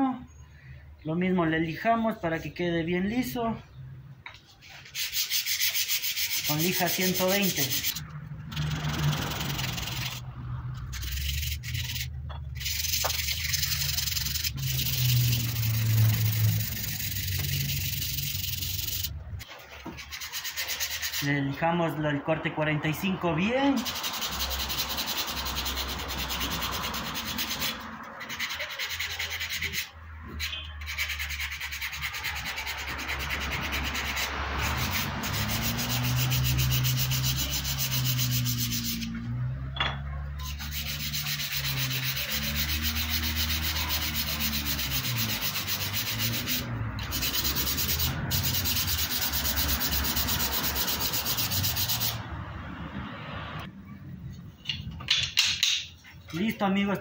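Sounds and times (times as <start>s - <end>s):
sandpaper rubbing on wood: 4.6s - 8.0s, 8.6s - 10.2s, 10.9s - 19.2s, 19.8s - 21.3s, 23.8s - 39.2s, 40.4s - 52.2s.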